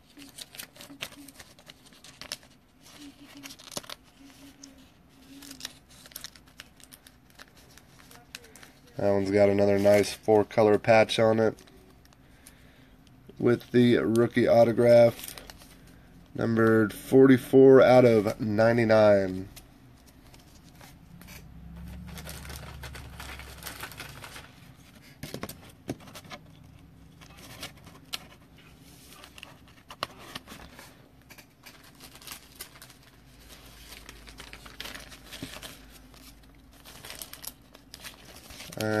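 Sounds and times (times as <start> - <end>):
foil wrapper crinkling: 0.0 - 12.7, 13.4 - 16.1, 18.0 - 25.5, 26.1 - 39.0
handling cardboard cards: 18.0 - 39.0.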